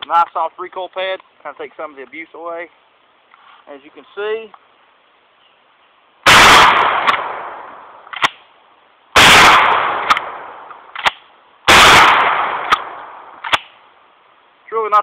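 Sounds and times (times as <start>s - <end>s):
shotgun blasts: 6.2s - 8.4s, 9.2s - 13.8s.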